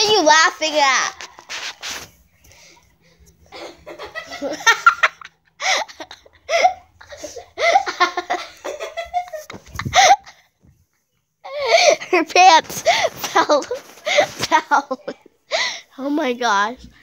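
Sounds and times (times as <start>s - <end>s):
girls laughing: 3.4s - 10.6s, 11.4s - 15.5s.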